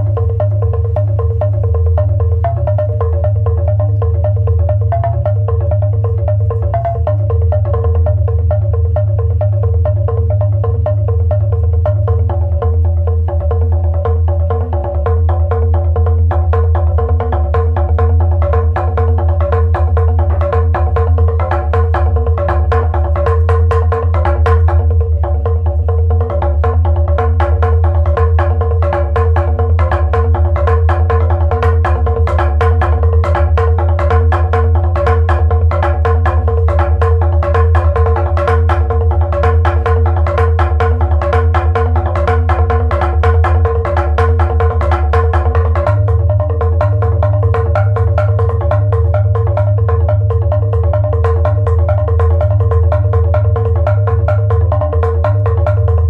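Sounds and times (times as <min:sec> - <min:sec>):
mallet strokes on pitched percussion: 0:00.0 - 0:56.0.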